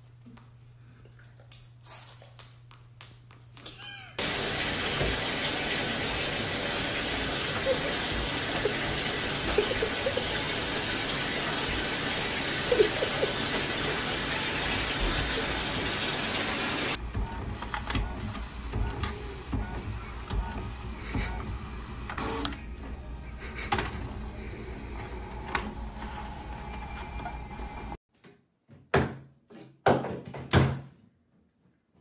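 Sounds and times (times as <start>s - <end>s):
faint animal cries: 3.6s - 4.2s
tap water pouring into bathtub: 4.2s - 17.0s.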